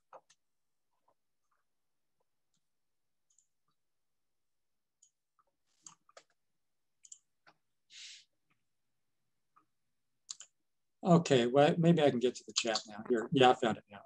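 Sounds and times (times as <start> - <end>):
computer mouse and keyboard clicks: 10.3 - 10.6.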